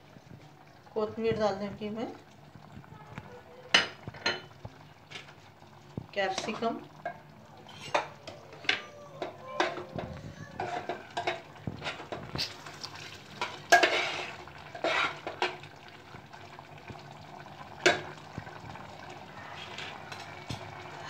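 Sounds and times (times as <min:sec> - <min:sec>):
spoon clinking and scraping pot: 0:06.4 - 0:10.0, 0:10.6 - 0:12.7, 0:13.4 - 0:15.6.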